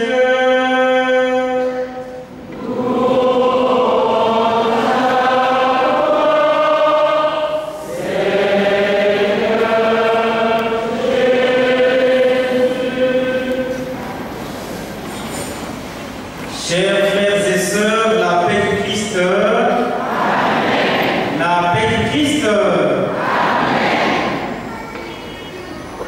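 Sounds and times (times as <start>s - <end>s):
choir singing chanted response: 2.5s - 14.0s, 19.9s - 21.4s, 22.9s - 24.6s.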